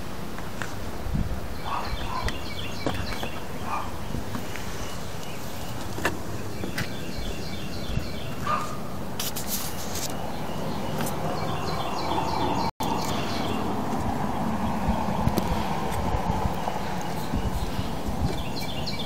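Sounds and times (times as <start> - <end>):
outdoor background noise: 0.0 - 19.0
birds chirping: 0.7 - 19.0
scraping rustle: 8.3 - 10.2.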